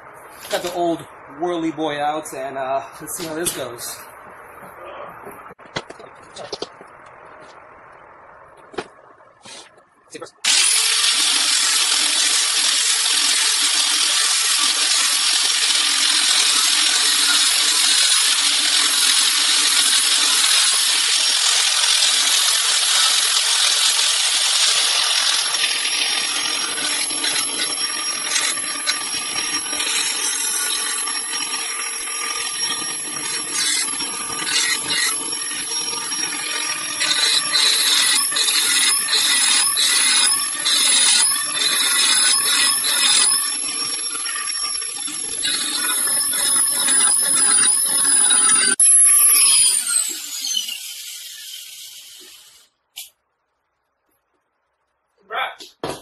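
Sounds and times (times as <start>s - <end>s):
angle grinder sanding metal: 10.5s - 52.6s.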